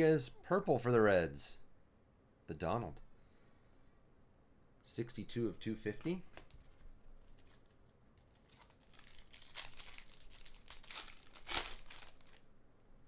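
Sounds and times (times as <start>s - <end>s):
foil pack crinkling and tearing: 7.4s - 12.5s.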